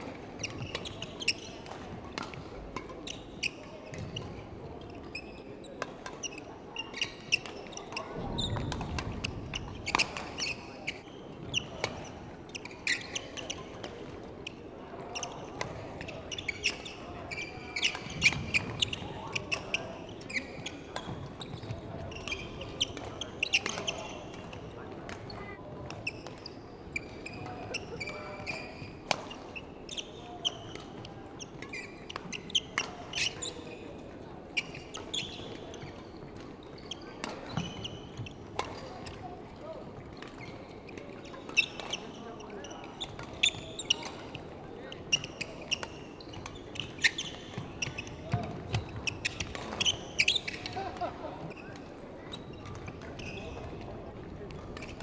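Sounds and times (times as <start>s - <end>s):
rackets striking shuttlecock: 22.2s - 25.2s
shoes squeaking on wooden floor: 36.8s - 53.9s.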